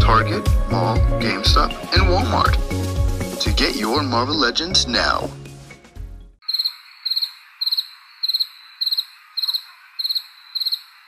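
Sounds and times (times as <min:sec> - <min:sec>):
cricket chirping: 0:06.4 - 0:11.0.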